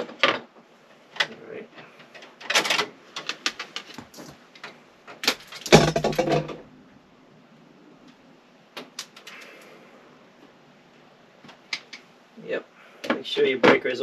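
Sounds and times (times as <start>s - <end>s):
clunk and rustle: 0.0s - 6.6s.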